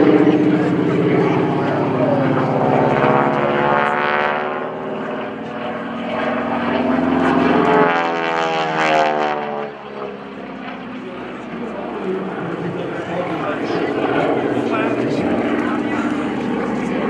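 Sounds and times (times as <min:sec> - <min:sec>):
propeller plane engine drone: 0:00.0 - 0:17.0.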